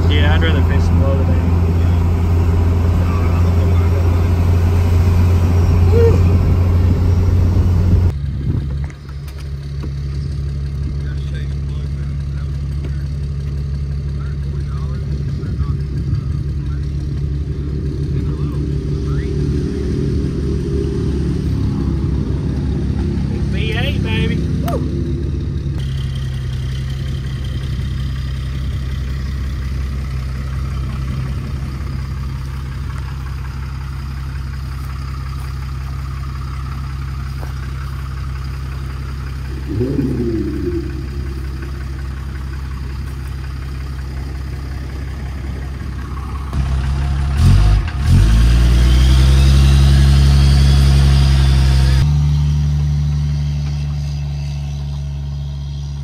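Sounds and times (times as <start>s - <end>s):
boat motor running: 0.0s - 34.6s, 36.7s - 46.6s.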